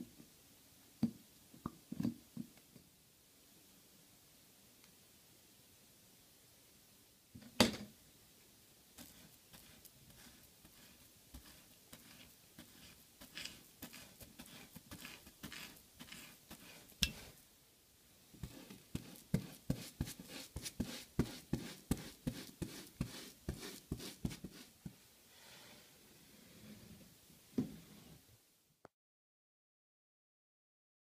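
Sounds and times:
paintbrush scratchy strokes: 9.0s - 17.4s, 18.4s - 24.8s.

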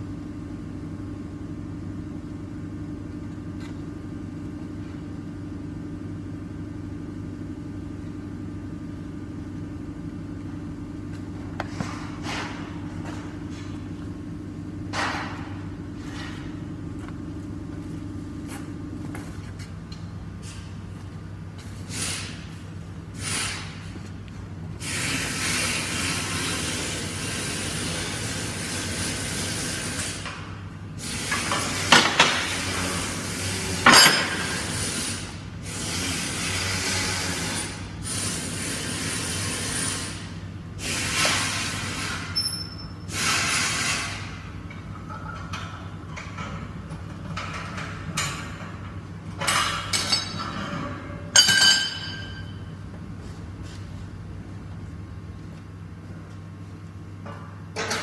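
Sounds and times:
low machine hum: 0.0s - 58.0s
metal clanks and clinks: 49.4s - 52.6s.

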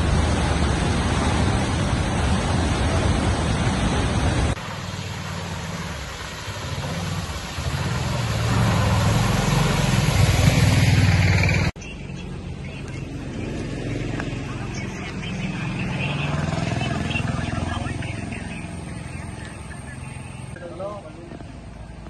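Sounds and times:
tyres splashing through water: 0.0s - 11.8s
floodwater rushing: 0.0s - 20.6s
auto-rickshaw engine: 3.8s - 22.0s.

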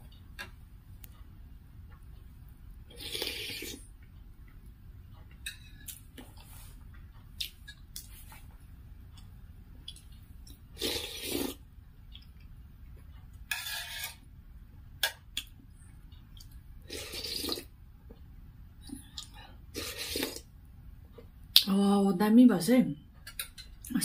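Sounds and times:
person slurping soup: 2.9s - 3.8s, 10.8s - 11.6s, 16.9s - 17.7s, 19.8s - 20.4s.

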